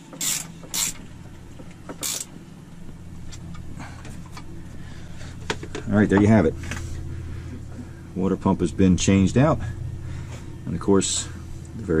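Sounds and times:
wrench turning a bolt: 0:00.0 - 0:01.0, 0:02.0 - 0:02.3
steady low hum: 0:00.0 - 0:12.0.

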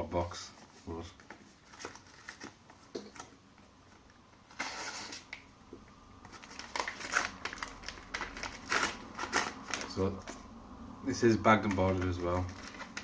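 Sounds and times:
paper packaging rustling: 0:00.4 - 0:03.3, 0:04.5 - 0:05.4, 0:06.2 - 0:10.5, 0:11.1 - 0:13.0.

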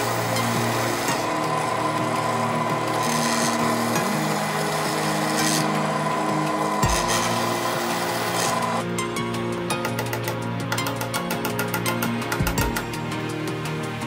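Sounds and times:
drill bit rasping through wood: 0:00.0 - 0:08.8
drill press motor hum: 0:00.0 - 0:08.8.

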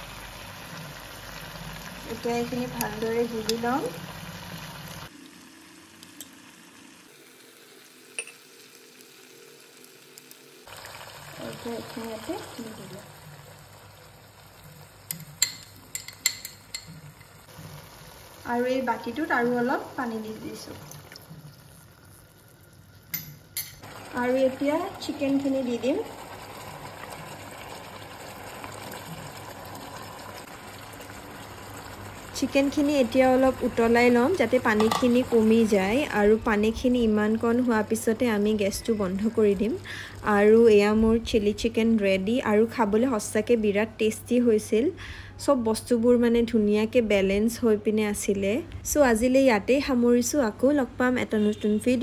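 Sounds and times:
sauce bubbling in a frying pan: 0:00.0 - 0:42.4
faint sizzle: 0:00.0 - 0:52.0
spoon clinking on glass: 0:08.2 - 0:08.4, 0:15.1 - 0:17.0.

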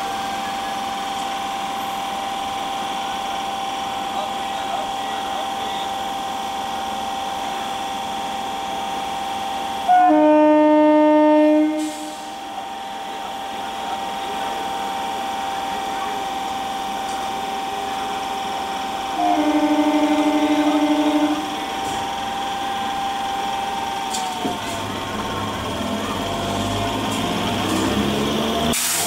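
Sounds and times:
steady whine of standing train: 0:00.0 - 0:29.0
train air horn blasts: 0:09.8 - 0:12.4, 0:19.1 - 0:21.9.

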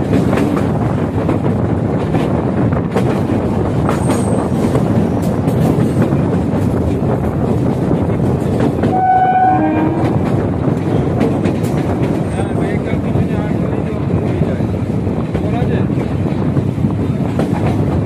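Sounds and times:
train wheels rumbling on rail: 0:00.0 - 0:18.0
two-tone train horn: 0:08.8 - 0:10.3.

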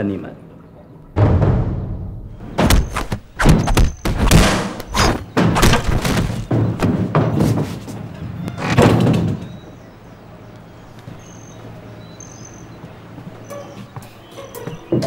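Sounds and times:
heavy thuds and crashing: 0:01.2 - 0:07.8.

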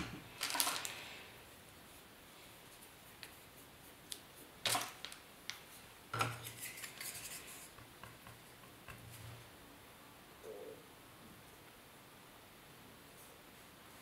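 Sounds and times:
tools scraping: 0:06.2 - 0:07.8.

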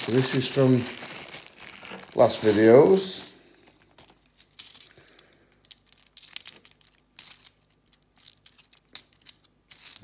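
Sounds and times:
coins clinking: 0:01.9 - 0:03.4, 0:04.3 - 0:04.9, 0:05.6 - 0:10.0.

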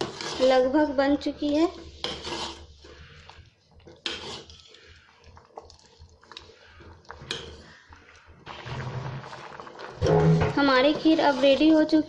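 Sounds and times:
spoon scraping metal pot: 0:00.0 - 0:00.8, 0:01.7 - 0:03.0, 0:04.0 - 0:04.8, 0:10.0 - 0:12.0.

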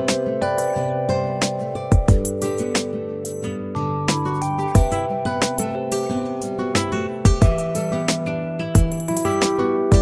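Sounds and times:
guitar: 0:00.0 - 0:10.0
deep kick drum: 0:01.9 - 0:02.4, 0:04.8 - 0:05.0, 0:07.3 - 0:07.7, 0:08.8 - 0:09.1
steady drum beat: 0:01.9 - 0:02.4, 0:04.8 - 0:05.0, 0:07.3 - 0:07.8, 0:08.8 - 0:09.2.

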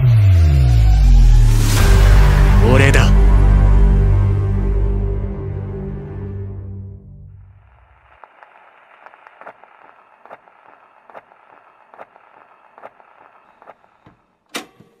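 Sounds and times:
crackling hiss: 0:07.5 - 0:14.0.

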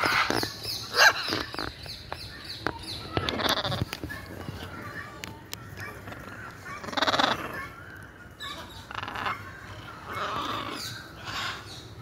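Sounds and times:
macaws squawking: 0:03.1 - 0:04.0, 0:05.7 - 0:11.8.

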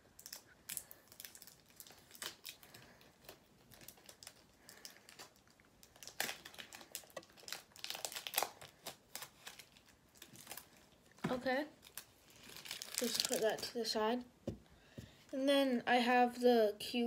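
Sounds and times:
plastic wrapping crinkling: 0:00.0 - 0:14.0.

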